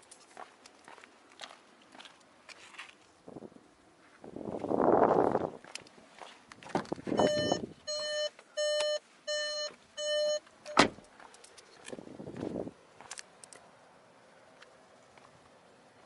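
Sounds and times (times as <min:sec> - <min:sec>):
car warning chime beeping: 0:07.2 - 0:10.9.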